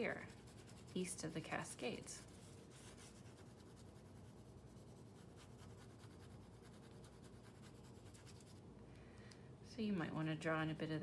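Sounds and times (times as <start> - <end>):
pencil scratching on paper: 0.0 - 8.6.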